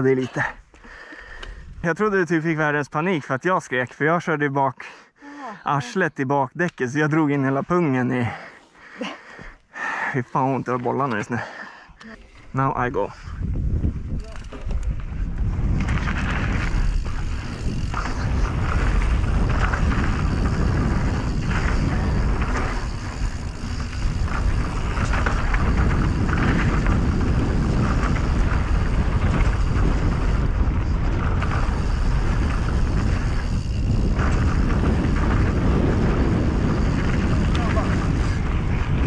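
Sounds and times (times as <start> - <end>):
wind rushing over microphone: 1.5 - 1.9, 12.6 - 39.0
bike tyre rumble: 12.4 - 39.0
bike rattling over bumps: 13.5 - 39.0.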